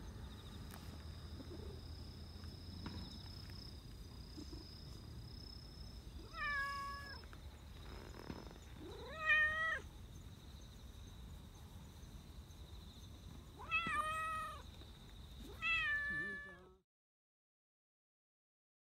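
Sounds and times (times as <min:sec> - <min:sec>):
cat meowing: 0:06.2 - 0:07.3, 0:08.8 - 0:09.9, 0:13.6 - 0:14.6, 0:15.5 - 0:16.8.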